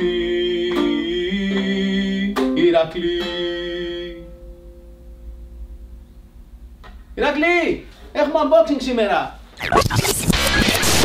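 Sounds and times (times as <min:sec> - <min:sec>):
acoustic string instrument strummed: 0:00.0 - 0:05.7.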